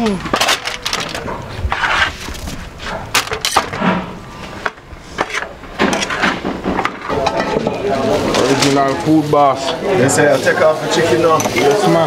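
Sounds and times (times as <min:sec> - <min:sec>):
aluminium foil crinkling: 0:00.0 - 0:03.7, 0:07.9 - 0:12.0.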